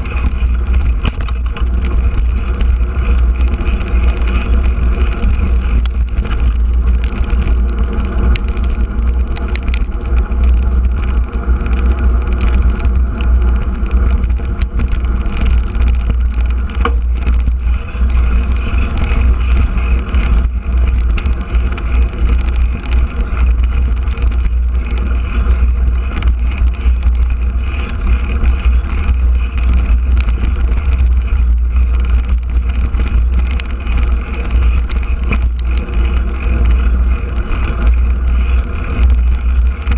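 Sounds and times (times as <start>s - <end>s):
bike tyres rumbling on dirt: 0.0s - 39.9s
small clicks and rattles: 0.0s - 39.9s.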